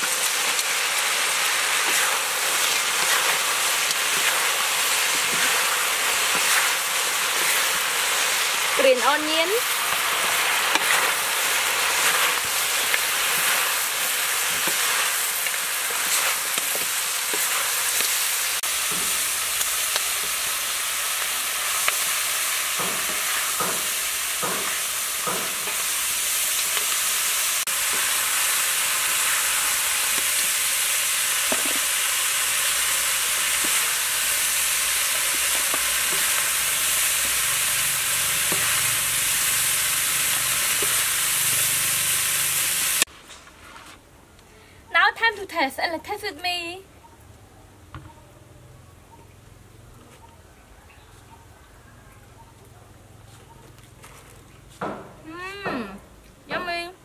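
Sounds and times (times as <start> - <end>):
food sizzling in a wok: 0.0 - 43.1
wooden spatula stirring: 1.4 - 9.0, 9.6 - 19.2.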